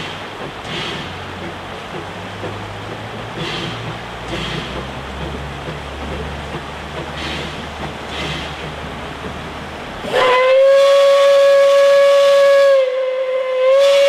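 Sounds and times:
train rushing noise: 0.0 - 14.0
steam whistle long blast: 10.1 - 14.0.

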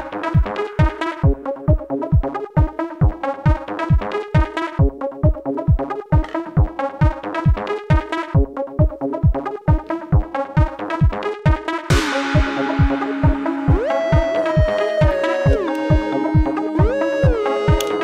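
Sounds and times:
synthesizer: 0.0 - 18.0
kick-drum beat: 0.4 - 18.0
electronic dance music: 11.4 - 18.0.

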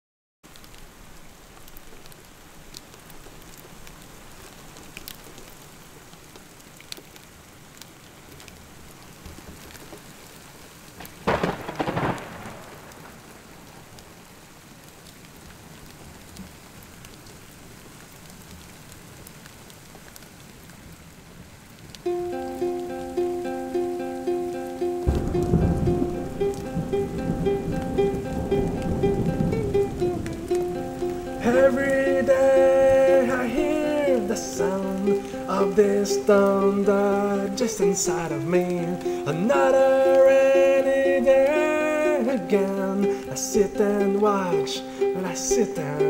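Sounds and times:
steady rain falling: 0.4 - 46.0
thunder clap rumbling: 11.2 - 13.7, 25.0 - 33.7
drops ticking: 22.1 - 46.0.

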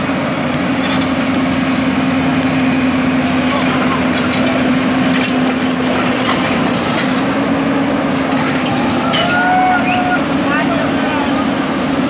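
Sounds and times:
excavator diesel engine running: 0.0 - 12.0
metallic clicks and rattles: 3.4 - 7.4, 8.2 - 9.4.

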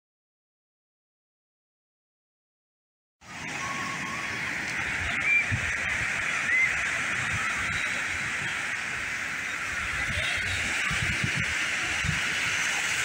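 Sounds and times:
surf washing onto beach: 3.2 - 13.0.

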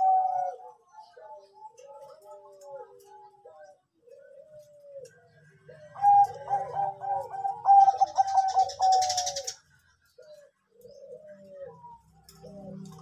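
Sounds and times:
dove cooing: 0.0 - 13.0.

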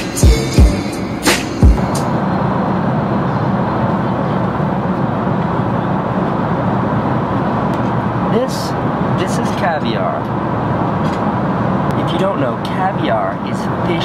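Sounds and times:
airliner cabin engine rush: 0.0 - 14.0.

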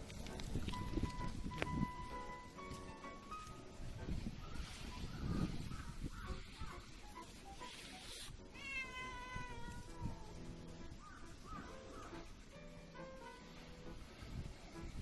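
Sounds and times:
cat meowing: 8.5 - 10.4.

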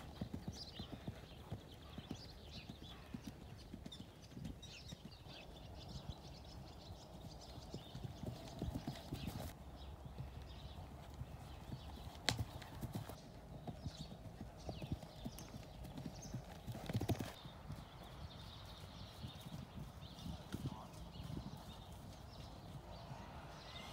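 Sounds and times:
horse hoofbeats on soft ground: 0.0 - 23.2.

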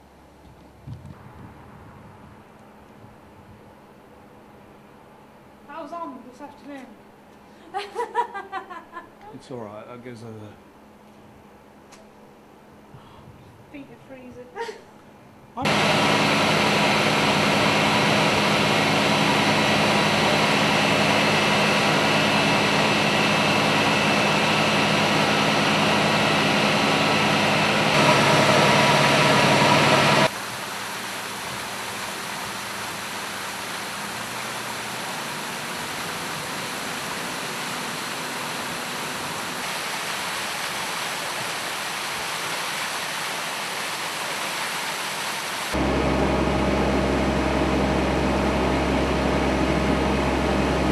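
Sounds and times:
pump engine drone and hiss: 15.6 - 50.9
water gushing from hose: 15.7 - 45.8.

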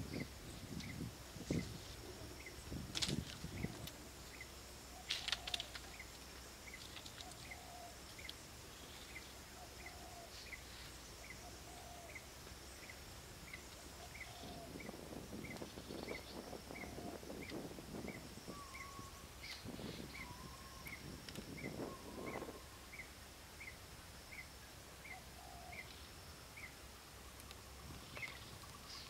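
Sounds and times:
high insect buzz: 0.0 - 29.0
lower bird call: 0.0 - 29.0
bird chirping: 3.4 - 26.8
rustling and scraping bamboo: 5.0 - 9.2.

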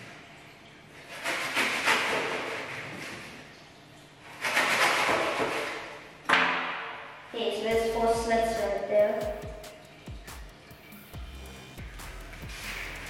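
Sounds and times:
knife sawing through foam: 1.1 - 2.8.

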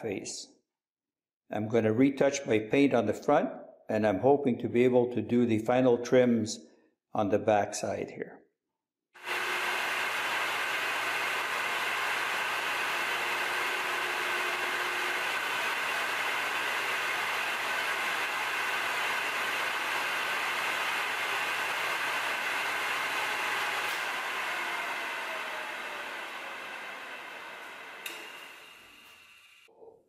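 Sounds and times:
electric motor humming: 9.2 - 29.7.

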